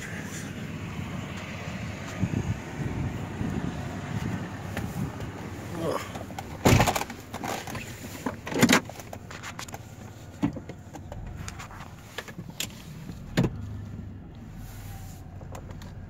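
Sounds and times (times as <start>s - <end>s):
objects clunking and knocking: 6.1s - 13.6s.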